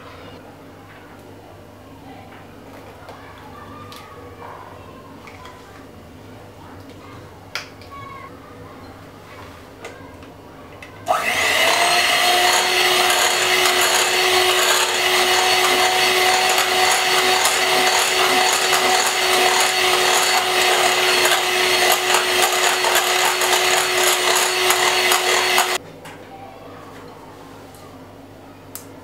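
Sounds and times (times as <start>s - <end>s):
beaters churning batter: 11.1s - 25.8s
electric hand mixer whining: 11.1s - 25.8s.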